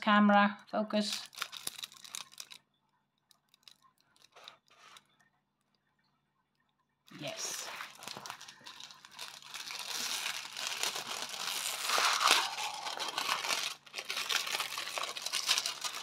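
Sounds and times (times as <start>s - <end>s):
plastic crinkling and rustling: 1.1s - 2.7s, 3.3s - 5.2s, 7.1s - 16.0s.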